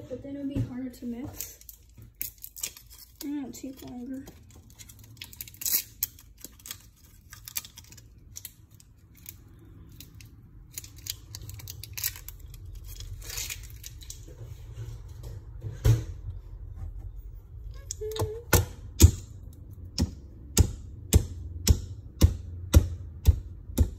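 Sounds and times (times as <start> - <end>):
candy wrappers crinkling: 1.0 - 14.4.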